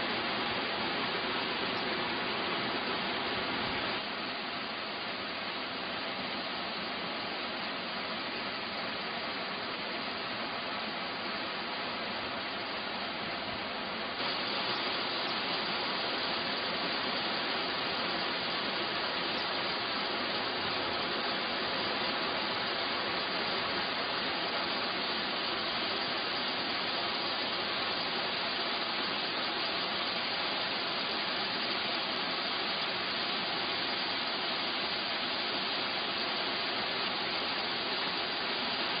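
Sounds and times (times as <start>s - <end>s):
waterfall rushing: 14.2s - 39.0s.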